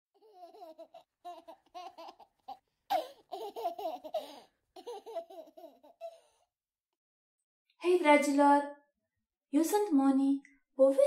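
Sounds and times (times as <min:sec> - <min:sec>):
young child giggling: 0:00.2 - 0:06.1.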